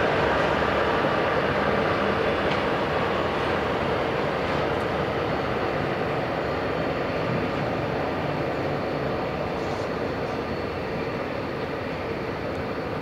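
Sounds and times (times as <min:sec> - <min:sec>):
jet engines running at taxi power: 0:00.0 - 0:13.0.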